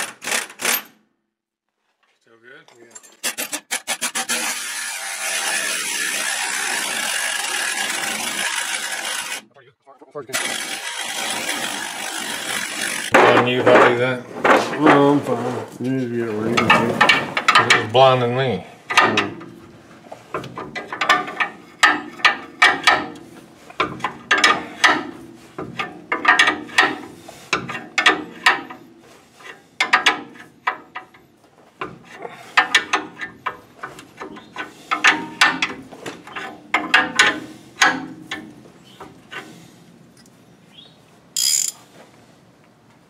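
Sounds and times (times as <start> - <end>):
hand ratchet clicking: 41.4 - 41.8.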